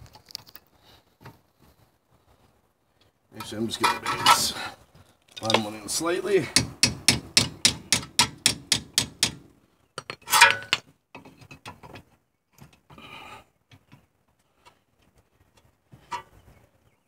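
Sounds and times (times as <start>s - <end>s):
tools clicking and rattling: 5.3s - 5.8s
hammer tapping on metal: 6.6s - 9.4s.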